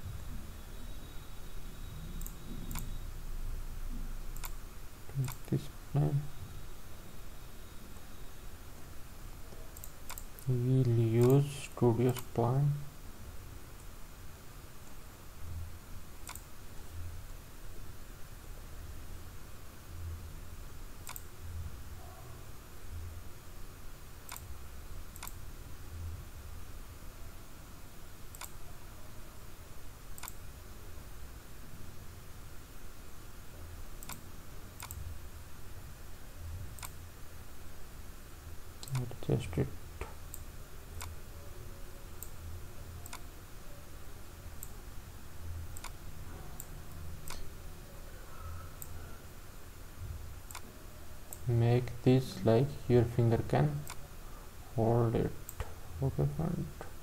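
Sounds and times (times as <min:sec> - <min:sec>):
low steady background hum: 0:00.0 - 0:57.0
computer mouse clicking: 0:04.4 - 0:05.6, 0:09.8 - 0:10.6, 0:12.1 - 0:12.4, 0:16.2 - 0:16.5, 0:21.0 - 0:21.3, 0:24.3 - 0:24.5, 0:25.1 - 0:25.4, 0:28.3 - 0:28.6, 0:30.2 - 0:30.4, 0:34.0 - 0:35.0, 0:38.8 - 0:39.1, 0:43.0 - 0:43.3, 0:45.8 - 0:46.0, 0:46.6 - 0:47.5.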